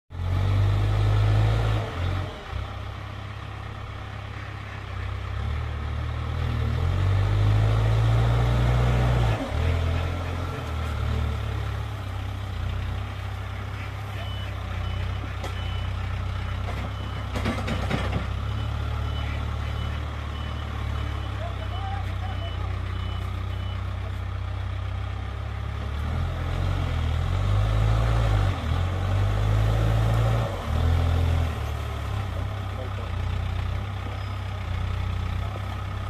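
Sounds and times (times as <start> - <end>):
diesel engine revving under load: 0.1 - 36.0
reversing alarm beeping: 14.1 - 16.2, 16.8 - 17.4, 18.4 - 24.0.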